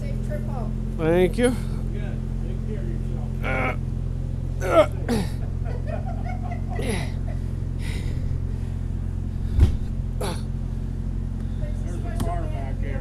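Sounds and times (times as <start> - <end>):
engine idling hum: 0.0 - 13.0
dull thump: 9.4 - 10.0.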